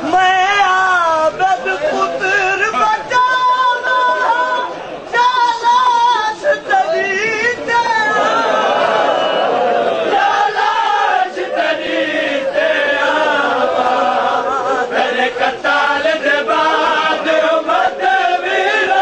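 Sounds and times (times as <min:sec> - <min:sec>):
men chanting together: 0:08.0 - 0:19.0.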